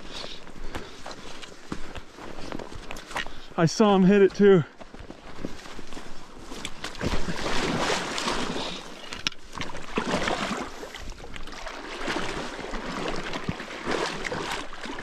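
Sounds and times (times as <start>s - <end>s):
water sloshing and splashing: 5.3s - 15.0s.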